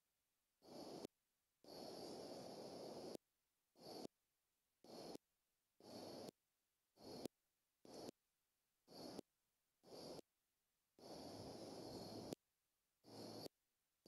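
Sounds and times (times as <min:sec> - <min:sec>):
faint outdoor microphone hiss: 0:01.6 - 0:03.2, 0:11.0 - 0:12.4.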